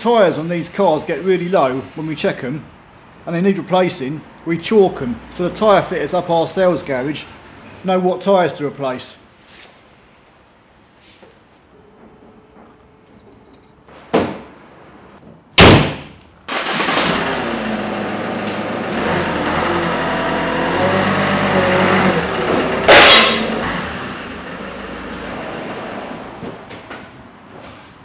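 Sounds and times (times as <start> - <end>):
car engine starting and running: 16.5 - 26.5.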